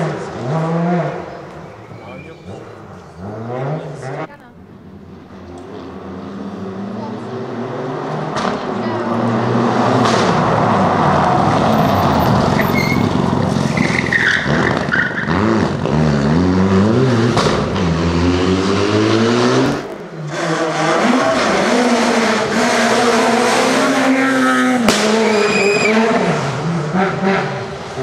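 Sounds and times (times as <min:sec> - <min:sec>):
rally car accelerating: 0:00.0 - 0:28.0
rally car engine revving: 0:00.0 - 0:28.0
tyre squeal: 0:11.7 - 0:15.4, 0:25.2 - 0:26.2.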